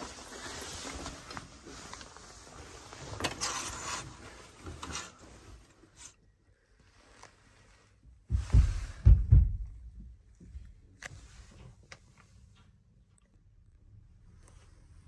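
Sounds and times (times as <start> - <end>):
rustling and handling noise: 0.0 - 9.3, 10.1 - 13.3
faint low rumble: 6.4 - 15.0.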